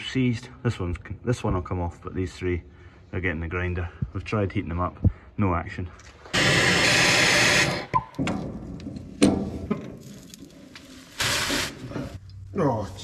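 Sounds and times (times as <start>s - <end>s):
angle grinder cutting: 6.4s - 7.9s.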